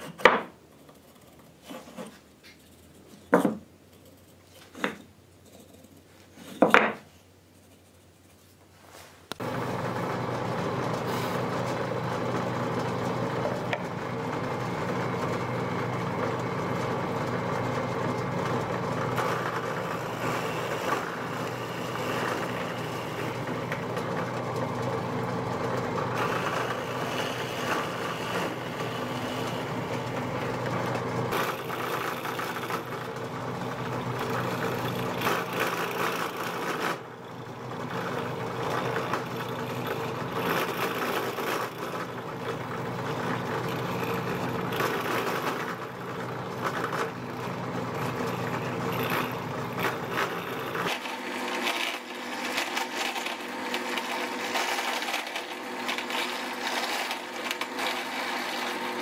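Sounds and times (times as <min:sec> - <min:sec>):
drill press motor hum: 0:09.3 - 0:59.0
drill bit boring into wood: 0:09.5 - 0:59.0.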